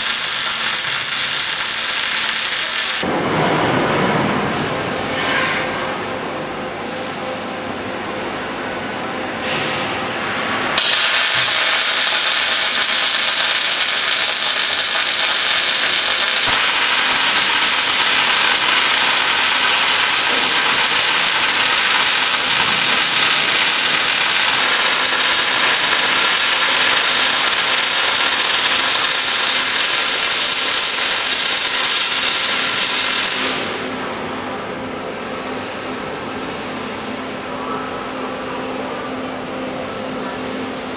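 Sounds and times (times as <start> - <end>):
arc welding hiss: 0.0 - 3.0, 10.8 - 33.8
machine hum: 0.0 - 37.4.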